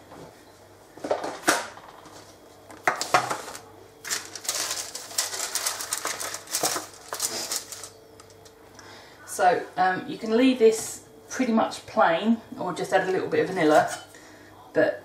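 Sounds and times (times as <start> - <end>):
microwave oven humming: 0.0 - 15.0
boiling mixture crackling and popping: 2.7 - 8.6.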